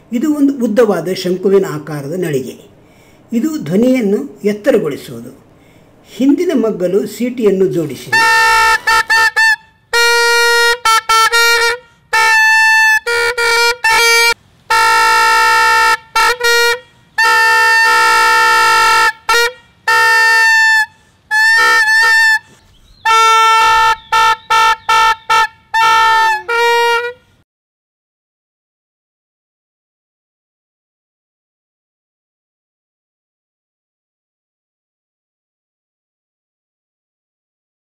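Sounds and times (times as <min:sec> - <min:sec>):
toy horn toots and blasts: 0:08.1 - 0:27.2.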